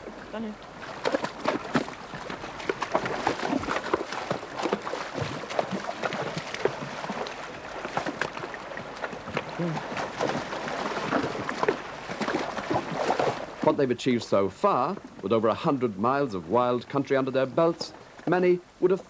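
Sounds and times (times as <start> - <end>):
hooves splashing in water: 0.0 - 14.0.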